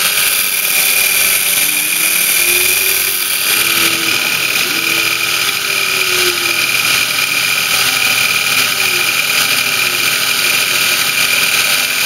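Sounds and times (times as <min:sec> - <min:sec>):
milling machine cutting whine: 0:00.0 - 0:12.0
spindle noise: 0:00.0 - 0:12.0.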